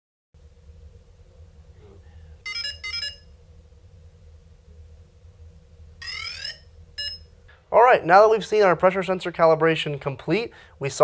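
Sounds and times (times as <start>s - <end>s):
low steady hum: 0.4s - 11.0s
short electronic beeps: 6.0s - 7.3s.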